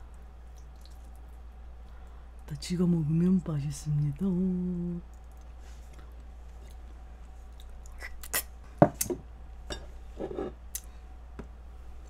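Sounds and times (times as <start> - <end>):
mouth eating sounds: 7.5 - 8.6.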